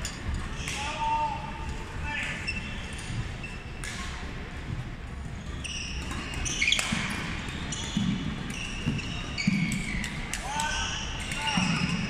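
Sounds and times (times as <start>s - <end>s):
shoes squeaking on wooden floor: 5.3s - 12.0s
racket hitting shuttlecock: 6.0s - 12.0s.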